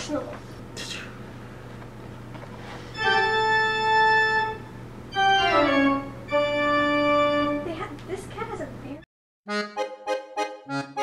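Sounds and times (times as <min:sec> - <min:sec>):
falling organ-like notes: 0:03.0 - 0:07.7.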